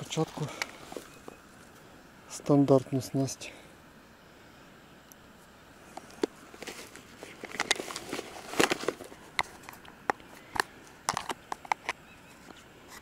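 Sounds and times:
rustling: 0.0s - 1.9s, 5.8s - 13.0s.

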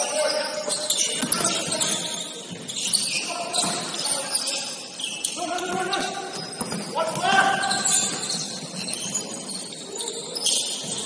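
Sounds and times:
players calling out: 0.6s - 9.2s.

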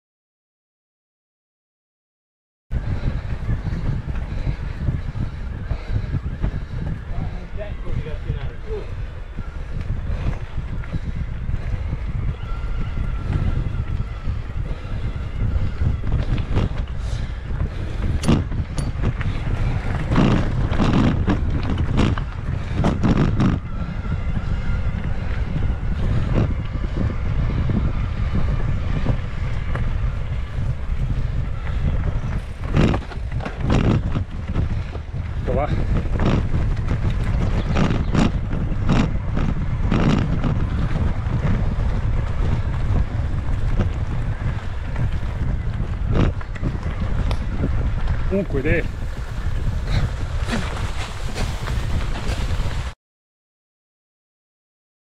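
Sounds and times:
low rumble: 2.7s - 53.0s
wind buffeting microphone: 2.7s - 53.0s
bike knocks and rattles: 15.5s - 24.1s, 26.0s - 48.3s.

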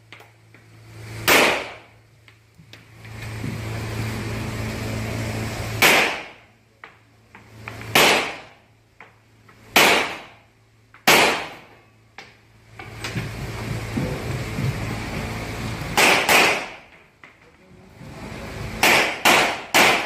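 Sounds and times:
pistol shots echoing indoors: 1.3s - 1.8s, 5.8s - 6.4s, 7.9s - 8.5s, 9.8s - 10.4s, 11.0s - 11.6s, 16.0s - 16.8s, 18.8s - 20.0s.

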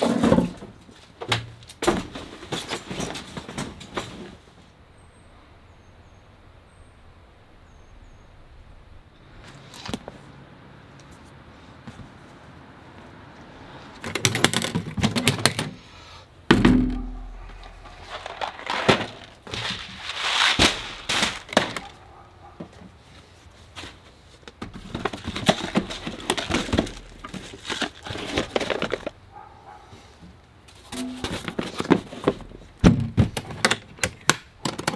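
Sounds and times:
clicks and knocks of packing: 14.0s - 15.8s, 16.9s - 22.0s, 24.5s - 29.2s, 30.9s - 34.9s
heavy thump: 16.5s - 17.4s
packaging rustling: 17.5s - 22.0s, 24.8s - 29.2s.

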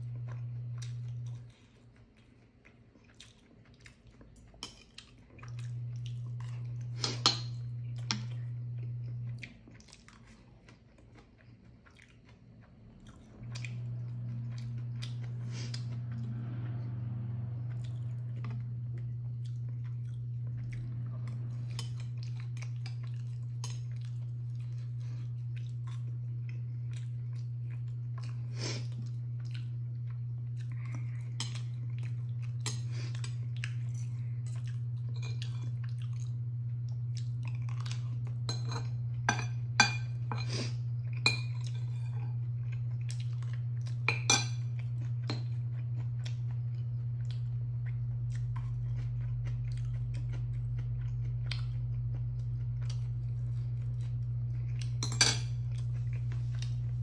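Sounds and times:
chewing: 0.0s - 57.0s
steady low hum: 0.0s - 57.0s
utensils clinking on dishes: 32.6s - 35.8s, 38.5s - 42.3s, 44.1s - 44.6s, 55.0s - 55.8s.

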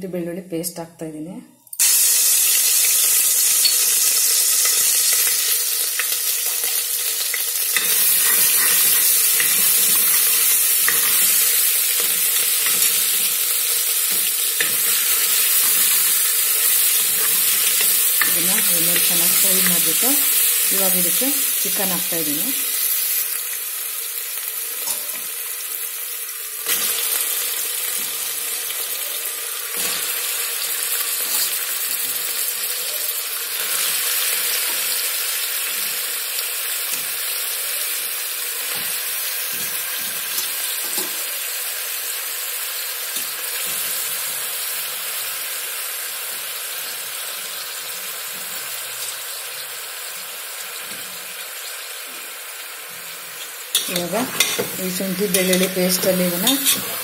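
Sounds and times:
chicken sizzling in hot oil: 1.8s - 57.0s.

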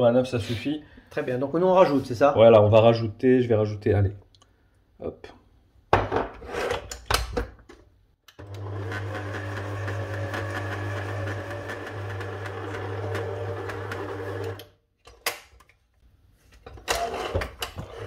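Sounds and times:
stand mixer running: 8.4s - 14.7s.

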